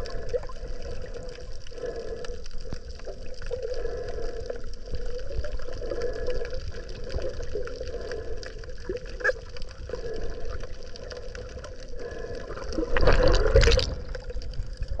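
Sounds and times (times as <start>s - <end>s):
underwater rumble and water movement: 0.0s - 15.0s
rush of water: 11.1s - 15.0s.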